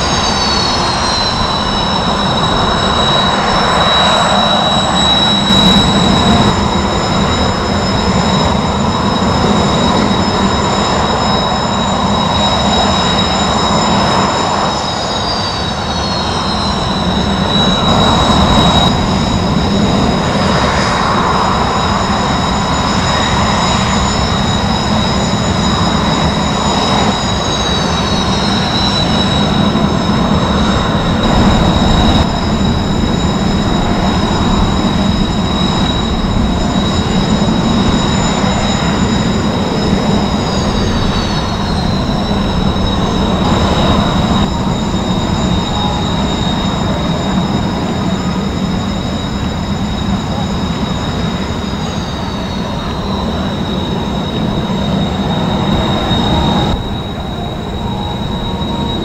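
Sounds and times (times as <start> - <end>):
jet engines taxiing whine: 0.0 - 59.0.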